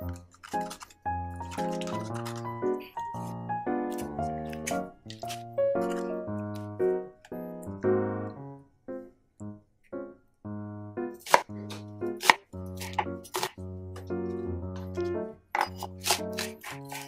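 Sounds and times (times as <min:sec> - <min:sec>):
light background music: 0:00.0 - 0:17.0
knife chopping on wooden board: 0:11.2 - 0:13.6.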